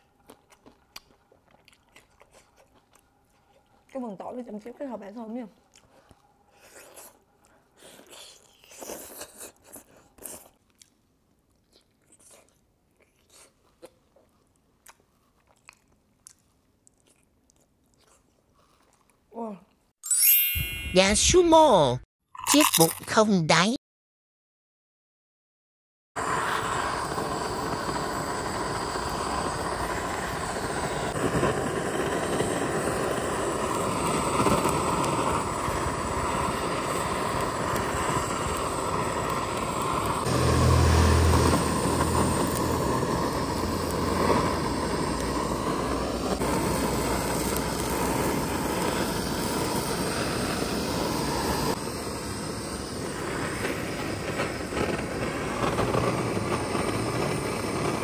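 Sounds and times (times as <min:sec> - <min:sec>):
butane torch hissing: 0:26.2 - 0:58.0.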